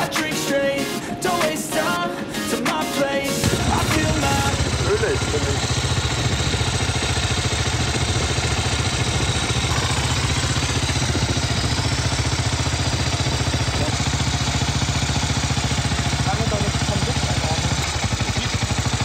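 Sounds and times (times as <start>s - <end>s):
motorcycle engine running: 3.4s - 19.0s.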